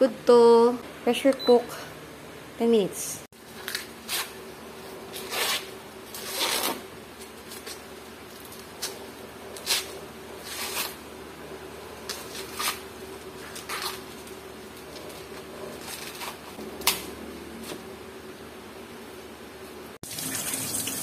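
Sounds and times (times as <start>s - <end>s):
corn husks ripping: 5.2s - 6.8s.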